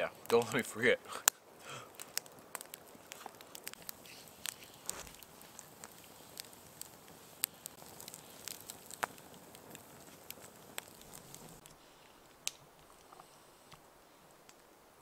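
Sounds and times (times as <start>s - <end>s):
campfire crackling: 0.0s - 15.0s
faint hiss: 0.0s - 15.0s.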